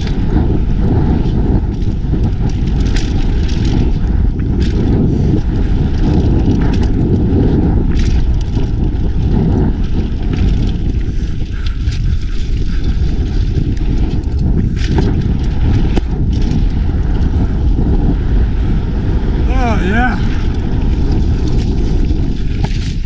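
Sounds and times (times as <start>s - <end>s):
bike rattling on bumps: 0.0s - 23.0s
wind rumble on microphone: 0.0s - 23.0s.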